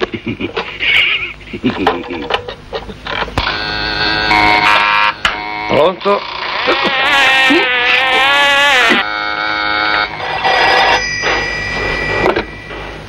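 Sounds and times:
wavering electronic tone: 3.4s - 5.9s, 8.6s - 13.0s
steady telephone tones: 3.4s - 6.5s, 9.0s - 13.0s.

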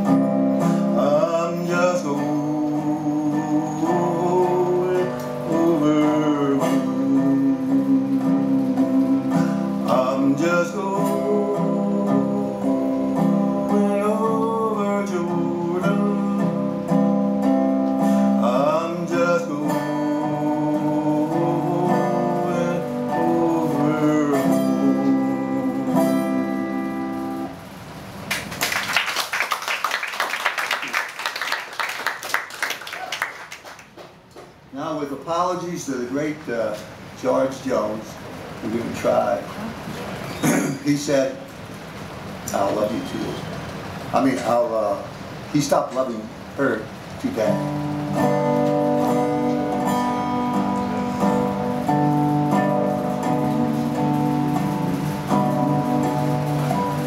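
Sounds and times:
slide guitar notes: 0.0s - 27.7s, 47.2s - 57.0s
audience applauding: 28.3s - 34.2s.

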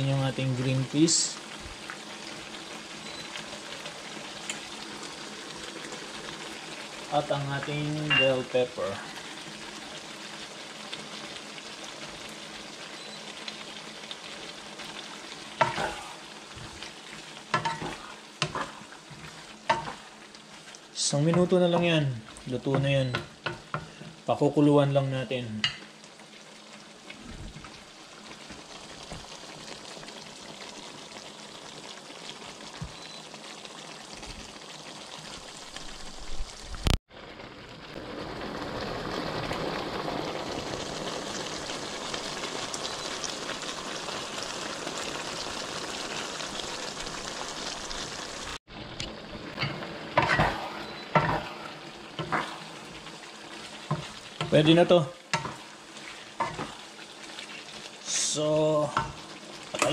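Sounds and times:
stew sizzling and bubbling: 0.0s - 59.9s
spatula scraping a pan: 15.6s - 24.2s, 49.5s - 57.8s.

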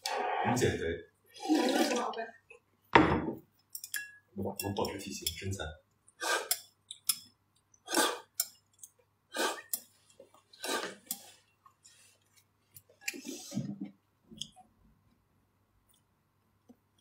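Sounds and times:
mouth slurping broth: 1.3s - 2.1s, 6.2s - 6.6s, 7.8s - 8.5s, 9.3s - 12.1s.

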